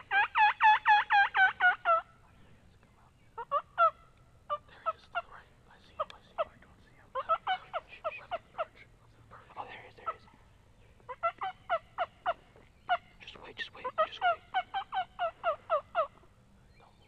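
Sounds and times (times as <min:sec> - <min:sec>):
turkey clucking: 0:00.0 - 0:02.1, 0:03.4 - 0:08.9, 0:09.9 - 0:16.3
turkey yelping: 0:00.0 - 0:02.1, 0:03.4 - 0:05.4, 0:06.0 - 0:08.8, 0:11.0 - 0:16.3.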